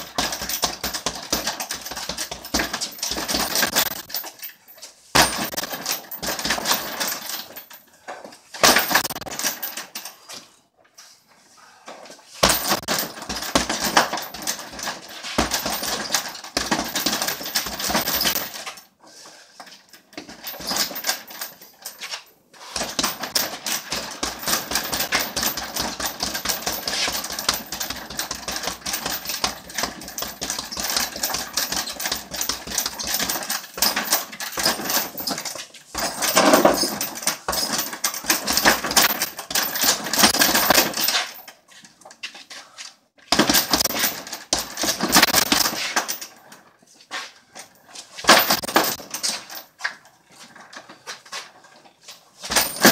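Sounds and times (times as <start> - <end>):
punches thudding on heavy bag: 0.0 - 4.1, 5.1 - 7.2, 12.4 - 18.5, 22.8 - 41.2, 43.3 - 46.0.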